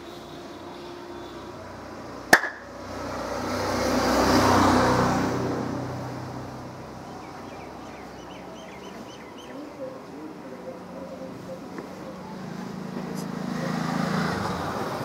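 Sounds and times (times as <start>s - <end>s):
vehicle passing on road: 0.0s - 15.0s
sharp knock: 2.3s - 2.7s.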